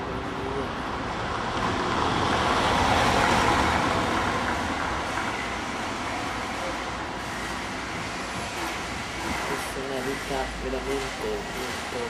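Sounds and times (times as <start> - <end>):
vehicle passing: 0.0 - 6.5.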